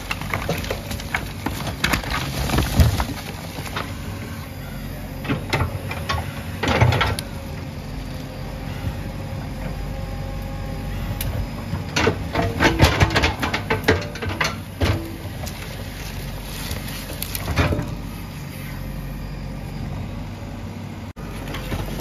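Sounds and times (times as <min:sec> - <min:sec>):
bricks and earth clattering: 0:00.0 - 0:08.0, 0:11.2 - 0:18.2, 0:21.2 - 0:22.0
diesel engine running: 0:00.0 - 0:22.0.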